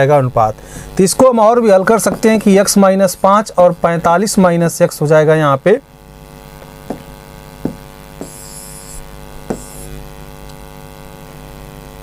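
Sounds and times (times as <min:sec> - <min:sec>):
electrical mains hum: 0:00.0 - 0:12.0
short high scratchy hiss: 0:08.2 - 0:10.1.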